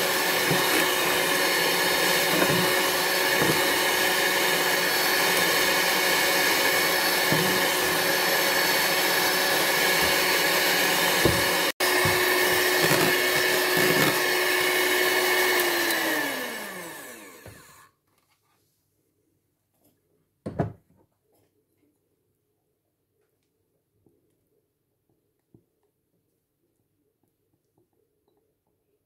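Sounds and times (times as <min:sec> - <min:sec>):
electric hand mixer whine: 0:00.0 - 0:17.9.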